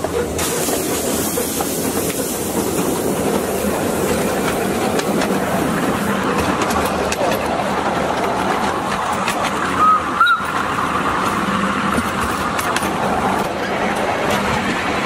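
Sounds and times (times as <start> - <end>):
miniature steam train rolling: 0.0 - 15.0.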